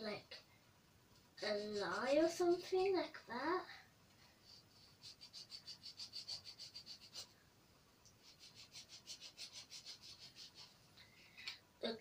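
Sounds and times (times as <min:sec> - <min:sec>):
marker scratching on fabric: 0:01.4 - 0:02.8, 0:04.5 - 0:07.4, 0:08.2 - 0:10.8.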